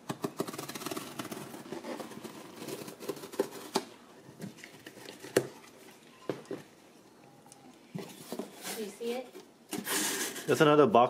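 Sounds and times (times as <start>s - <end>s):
hand tool slitting packing tape: 0.0s - 3.8s
paper and cardboard rustling: 0.0s - 6.7s, 7.9s - 10.8s.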